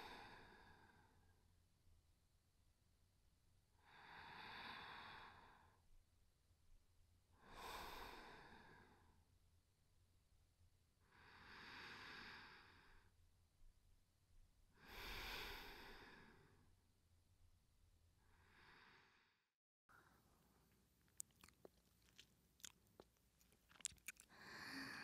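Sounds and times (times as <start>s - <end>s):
woman breathing slowly: 0.0s - 1.3s, 3.8s - 5.8s, 7.4s - 9.1s, 11.0s - 13.2s, 14.8s - 16.7s, 18.2s - 20.7s, 23.8s - 25.0s.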